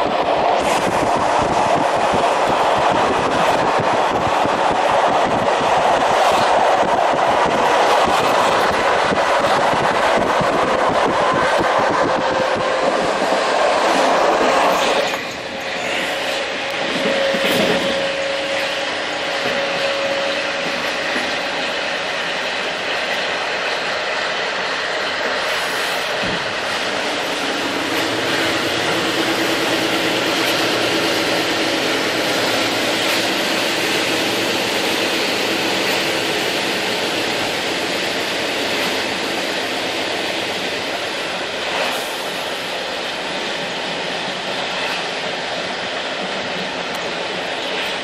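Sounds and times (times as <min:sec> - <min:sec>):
train wheels on rails: 0:00.0 - 0:48.0.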